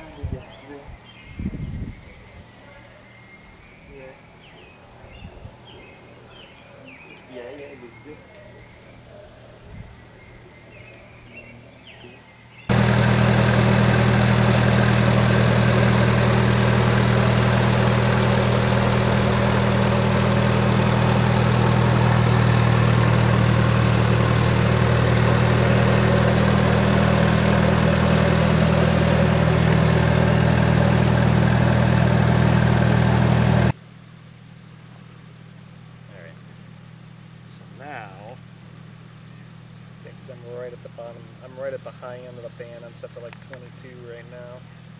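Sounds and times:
generator running: 12.7 - 33.8.

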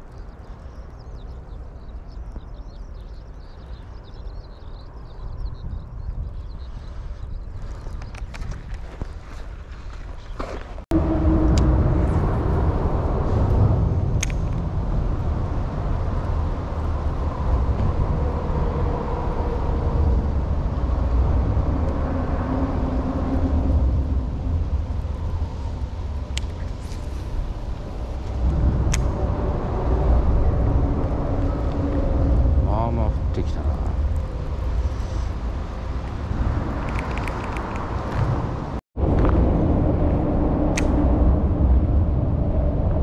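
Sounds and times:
low traffic rumble: 0.0 - 43.0
passing vehicles droning: 10.9 - 43.0
sharp clicks: 14.2 - 14.6.

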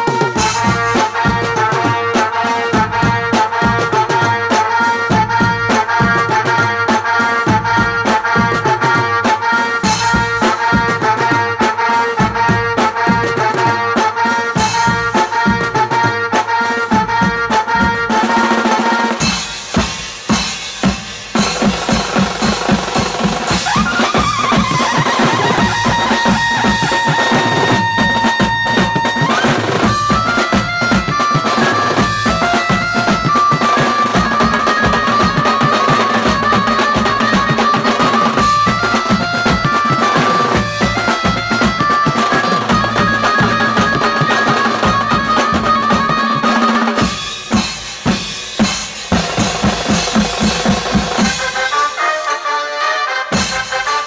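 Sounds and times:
band drumming: 0.0 - 54.0
stepping melody line: 16.9 - 54.0.

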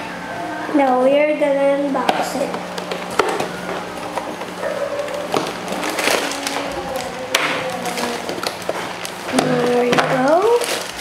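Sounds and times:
plastic bags crackling: 1.7 - 11.0
cardboard boxes tearing open: 5.0 - 11.0.

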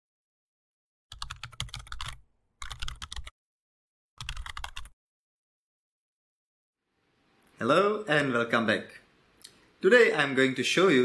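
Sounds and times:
computer keyboard typing: 1.1 - 3.3, 4.2 - 5.0.

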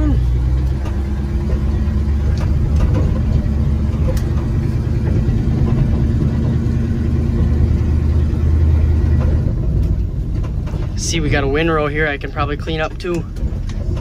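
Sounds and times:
truck engine rumbling: 0.0 - 14.0.

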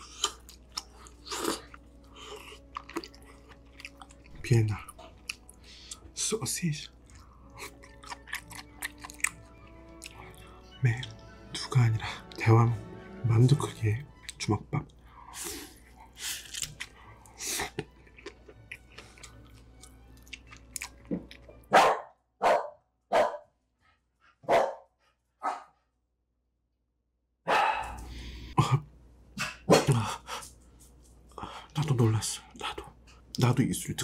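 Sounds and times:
close-up chewing: 0.0 - 6.2, 6.8 - 11.2, 14.2 - 21.7
sharp dog barks: 21.7 - 23.5, 24.4 - 24.8, 25.4 - 25.7, 27.5 - 28.0, 29.7 - 30.0.

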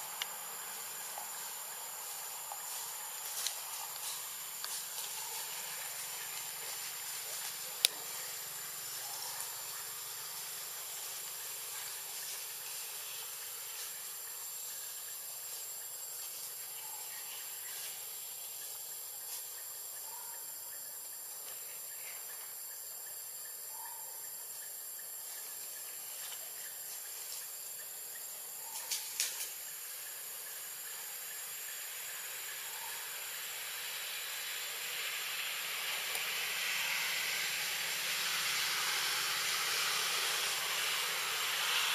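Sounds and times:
high-pitched forest hiss: 0.0 - 41.9.

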